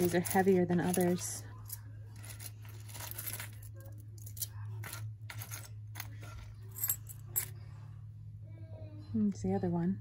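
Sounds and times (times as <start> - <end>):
jewelry clinking and jangling: 0.0 - 7.6.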